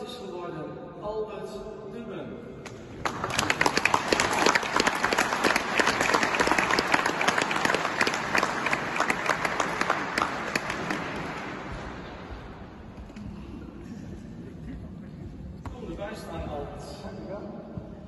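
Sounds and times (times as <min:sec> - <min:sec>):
audience applauding: 0:03.0 - 0:12.1.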